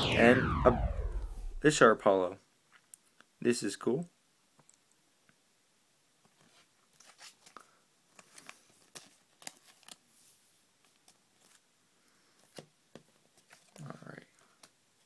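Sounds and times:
cards rustling and clicking: 0:06.3 - 0:10.1, 0:10.8 - 0:11.6, 0:12.4 - 0:14.8.

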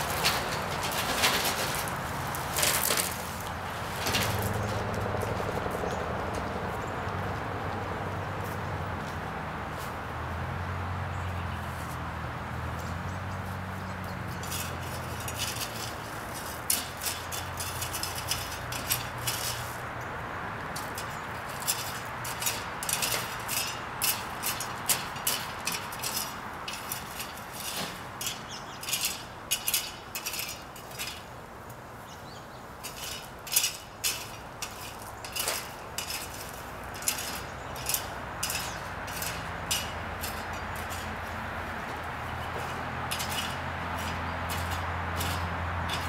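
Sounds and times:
hand tool scraping gravel: 0:00.0 - 0:04.9, 0:14.2 - 0:19.9, 0:20.7 - 0:31.4, 0:32.8 - 0:46.0.

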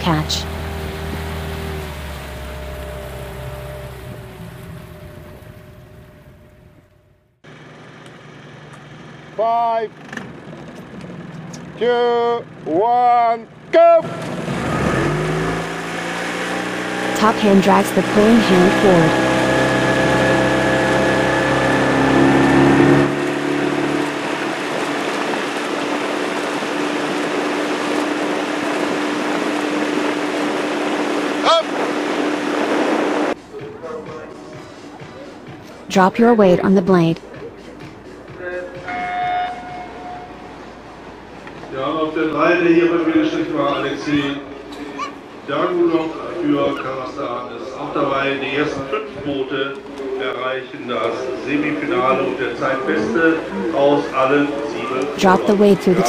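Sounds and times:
water and wind noise: 0:00.0 - 0:06.0, 0:15.7 - 0:33.4
motorboat engine running: 0:00.0 - 0:11.8, 0:14.1 - 0:33.6
open-air background noise: 0:00.0 - 0:56.0.

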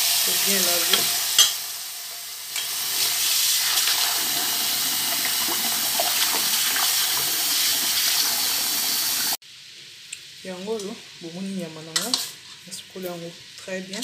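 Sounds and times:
tap water running into a pot: 0:02.5 - 0:09.4.

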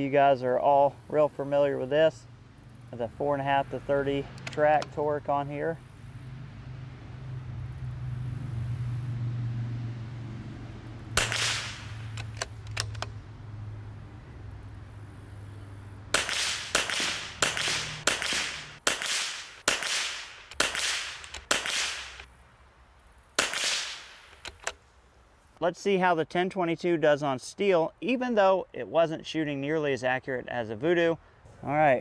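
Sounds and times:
rifle shots: 0:11.1 - 0:12.5, 0:16.1 - 0:22.2, 0:23.4 - 0:24.7.

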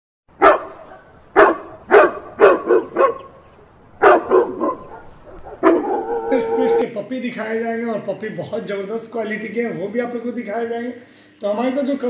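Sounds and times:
dog barking: 0:00.4 - 0:03.4, 0:04.0 - 0:06.8.

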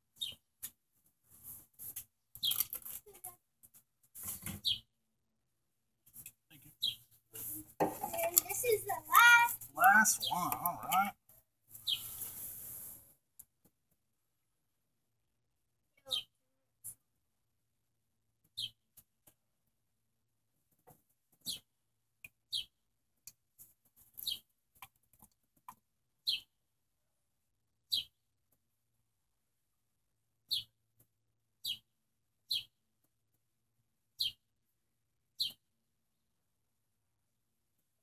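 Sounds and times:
small bird chirping: 0:00.1 - 0:00.7, 0:01.9 - 0:03.2, 0:04.6 - 0:04.9, 0:06.5 - 0:11.1, 0:11.7 - 0:12.4, 0:16.0 - 0:16.4, 0:18.5 - 0:18.8, 0:21.4 - 0:22.8, 0:24.1 - 0:25.0, 0:26.2 - 0:26.6, 0:27.9 - 0:28.2, 0:30.4 - 0:30.8, 0:31.6 - 0:32.8, 0:34.2 - 0:34.4, 0:35.4 - 0:35.7.

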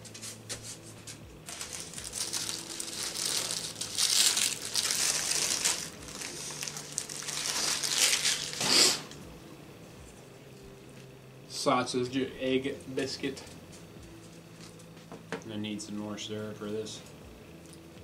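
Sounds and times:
paper wrapper crinkling and tearing: 0:01.5 - 0:09.2.

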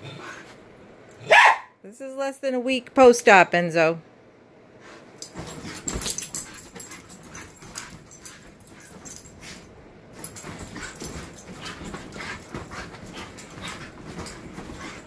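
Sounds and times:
puppy paws knocking and scuffing: 0:05.2 - 0:15.0.

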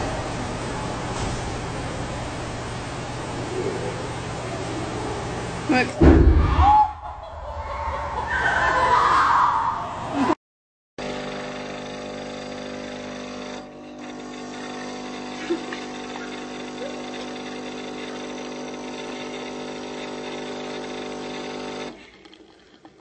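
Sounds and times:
coffee machine pump humming: 0:11.0 - 0:23.0.

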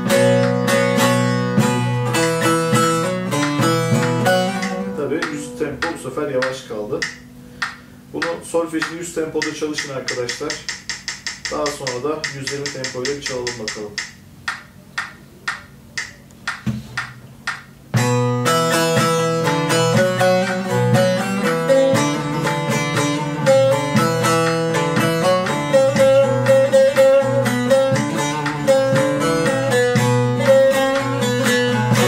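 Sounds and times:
plucked long-necked lute melody: 0:00.0 - 0:07.6, 0:18.0 - 0:32.0
metronome clicking: 0:00.0 - 0:32.0.

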